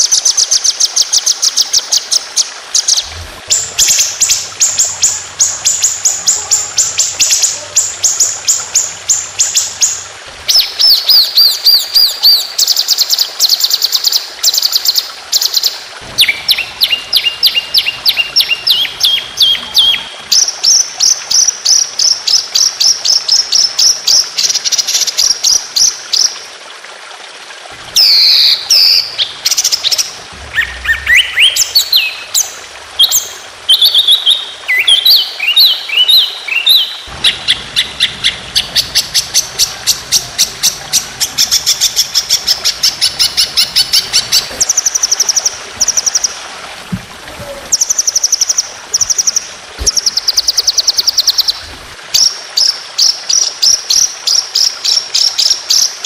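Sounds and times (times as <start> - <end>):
songbird singing rapid high notes: 28.0 - 46.3.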